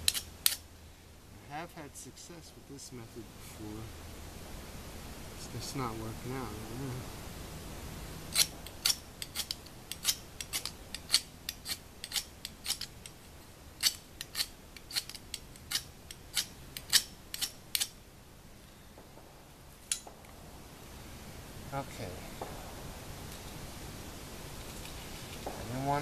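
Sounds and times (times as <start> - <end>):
ferro rod scraped with striker: 0.0 - 0.6, 8.3 - 13.2, 13.8 - 17.9.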